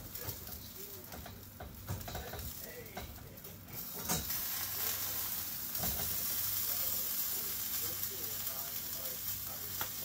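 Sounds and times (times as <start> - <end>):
fish sizzling on grill: 0.0 - 10.0
spatula and chopsticks scraping grill: 0.0 - 10.0.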